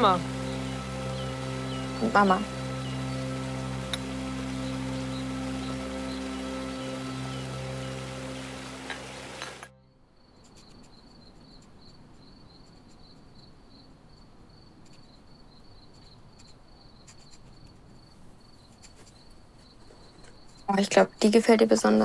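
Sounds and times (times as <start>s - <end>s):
music with held notes: 0.0s - 9.8s
crickets chirping: 0.0s - 22.0s
faint background hiss: 0.0s - 22.0s.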